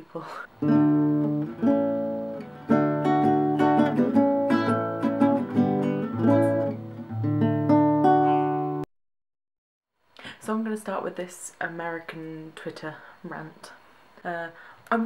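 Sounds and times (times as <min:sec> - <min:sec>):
acoustic guitar music: 0:00.6 - 0:08.9.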